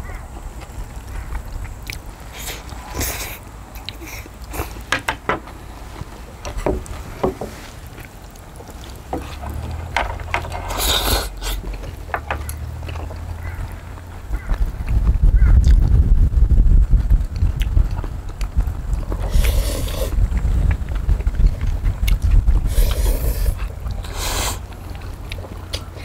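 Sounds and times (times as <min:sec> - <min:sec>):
chewing: 0:00.0 - 0:04.9, 0:07.5 - 0:15.9, 0:17.4 - 0:26.0
low rumble: 0:05.6 - 0:26.0
slurping noodles: 0:10.6 - 0:11.7, 0:19.1 - 0:20.2, 0:22.1 - 0:24.7.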